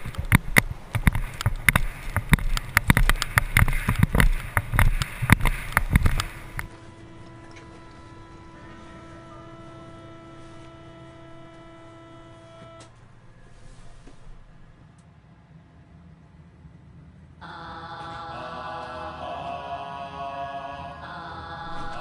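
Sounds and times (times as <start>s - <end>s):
board clacking over bumps: 0.0s - 12.9s
longboard wheels rolling on asphalt: 0.0s - 14.7s
wind rumble: 0.0s - 17.4s
background music held tones: 0.0s - 22.0s.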